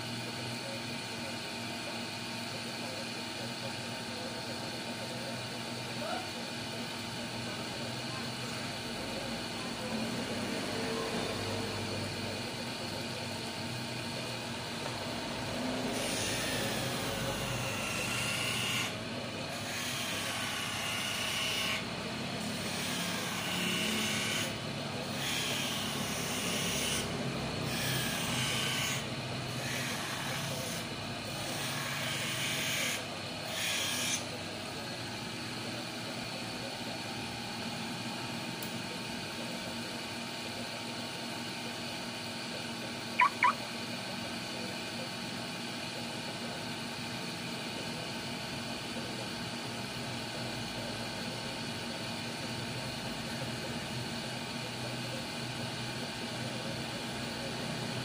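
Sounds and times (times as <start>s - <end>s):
grinding wheel running: 3.4s - 40.9s.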